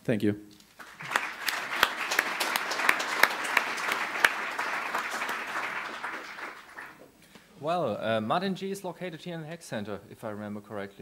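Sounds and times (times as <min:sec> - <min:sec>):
audience applauding: 0:00.8 - 0:07.1.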